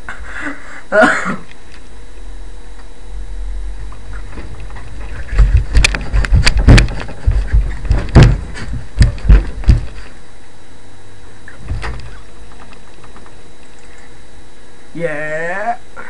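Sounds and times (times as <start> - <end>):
low steady hum: 0.0 - 16.0
irregular knocks and thumps: 4.2 - 10.1.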